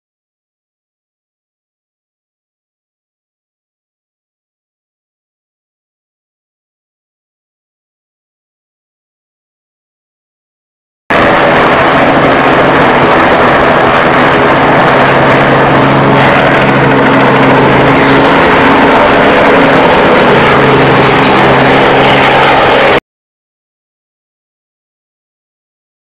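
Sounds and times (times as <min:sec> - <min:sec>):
helicopter engine and rotors: 0:11.1 - 0:23.0.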